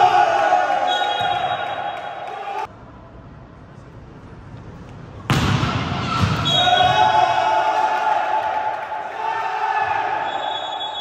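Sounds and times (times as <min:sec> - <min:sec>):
players shouting a cheer: 0:00.0 - 0:02.7, 0:05.8 - 0:11.0.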